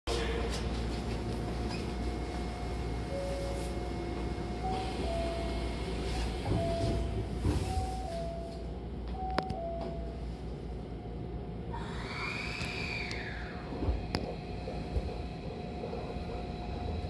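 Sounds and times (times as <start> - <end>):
train hum: 0.1 - 17.0
train doors closing: 3.1 - 10.2.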